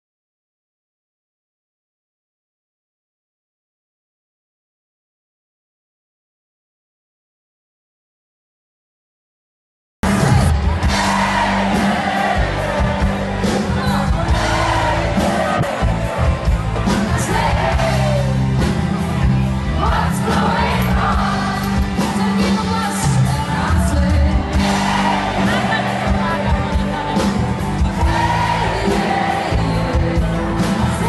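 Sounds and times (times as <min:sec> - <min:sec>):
band music with singer: 0:10.0 - 0:31.0
crowd yelling and whooping: 0:10.1 - 0:22.0, 0:23.0 - 0:30.1.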